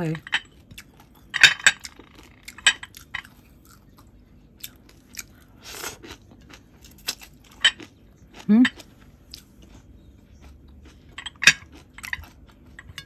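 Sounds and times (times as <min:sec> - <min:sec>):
food crunching: 0:00.4 - 0:13.0
person chewing food: 0:00.4 - 0:13.0.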